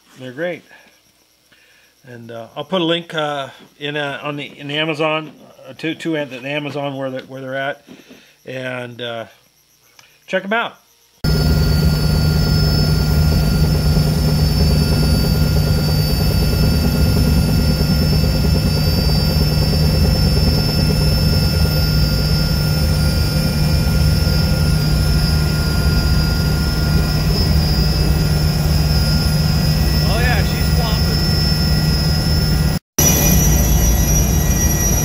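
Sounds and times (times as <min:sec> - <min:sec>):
helicopter engines and rotor drone: 0:11.2 - 0:35.0
high whines: 0:11.2 - 0:35.0.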